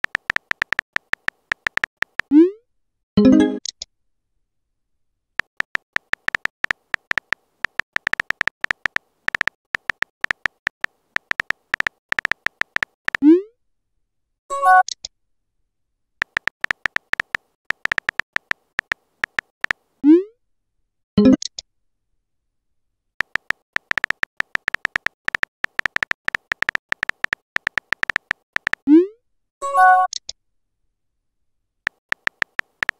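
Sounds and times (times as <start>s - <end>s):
phone keyboard clicks: 0.0s - 2.3s, 5.4s - 13.2s, 16.2s - 19.8s, 23.2s - 28.8s, 31.9s - 32.9s.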